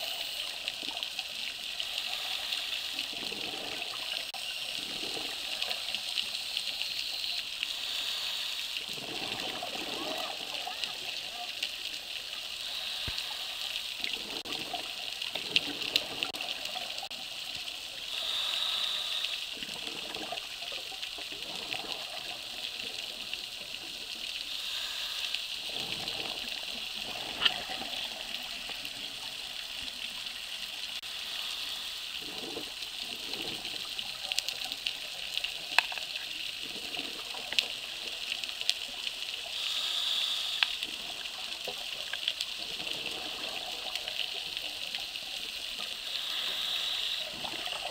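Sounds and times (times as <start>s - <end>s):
steady underwater hiss: 0.0s - 47.9s
exhaled bubbles rushing: 8.8s - 11.3s, 25.7s - 29.4s.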